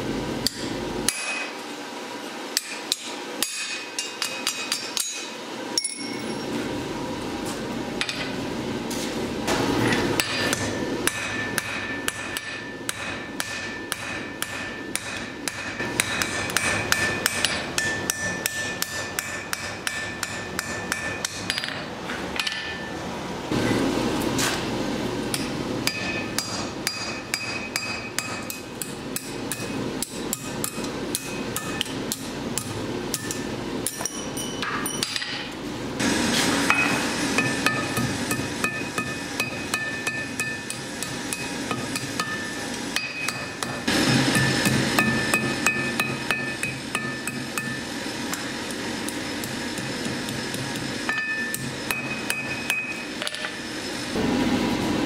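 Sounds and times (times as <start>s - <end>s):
hammer striking steel on anvil: 0.4s - 1.6s, 2.5s - 6.5s, 9.5s - 23.0s, 25.3s - 35.6s, 36.6s - 53.6s
anvil ringing tone: 3.4s - 6.6s, 10.2s - 21.8s, 33.1s - 35.3s, 36.7s - 48.4s, 49.3s - 53.2s.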